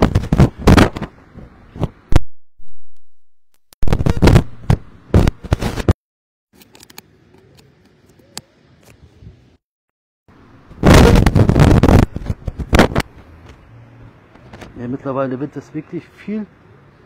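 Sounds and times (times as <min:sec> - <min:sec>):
microphone crackling and thumping: 0:00.0 - 0:02.2, 0:03.8 - 0:06.0, 0:10.8 - 0:13.6.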